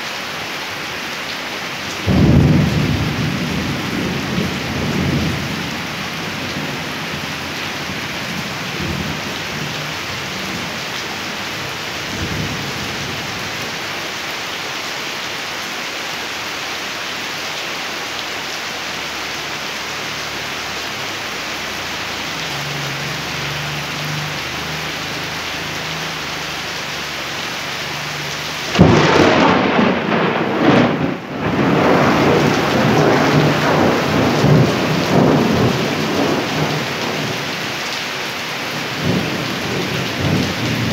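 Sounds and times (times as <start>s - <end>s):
steady rain: 0.0s - 40.9s
thunder clap and rumble: 2.0s - 9.7s, 28.7s - 37.6s, 39.0s - 40.9s.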